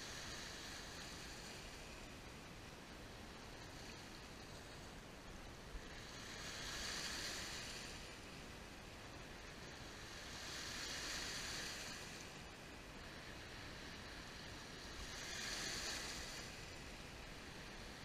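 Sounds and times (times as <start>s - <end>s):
waves washing over pebbles: 5.9s - 18.0s.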